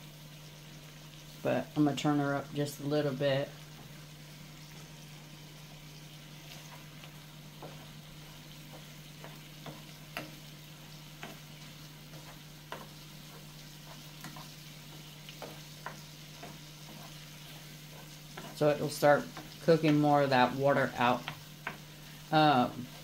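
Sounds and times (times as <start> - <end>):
shrimp sizzling in a pan: 0.0 - 23.0
wooden spoon scraping a pan: 6.2 - 23.0.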